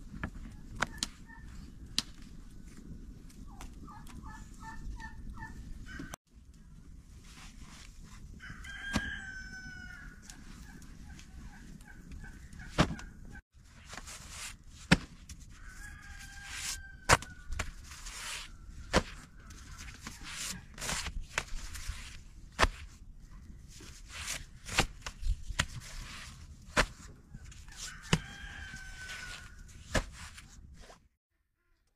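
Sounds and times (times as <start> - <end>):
rooster crowing: 8.4 - 10.3, 15.6 - 17.5, 27.8 - 29.6.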